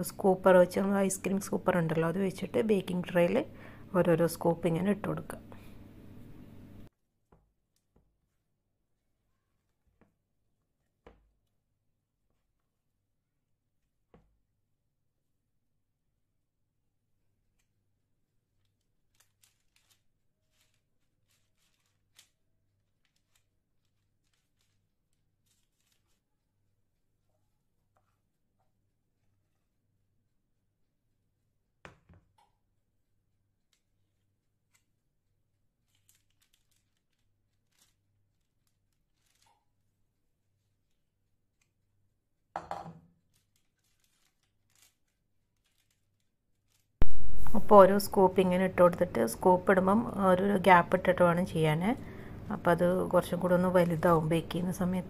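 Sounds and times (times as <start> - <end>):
dough scraping on parchment paper: 19.0 - 26.7, 43.3 - 47.0.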